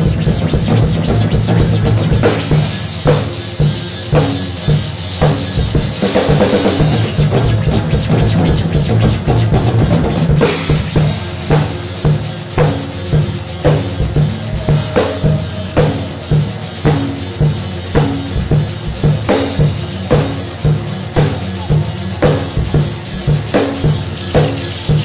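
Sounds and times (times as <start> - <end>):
drum kit beat: 0.0 - 25.0.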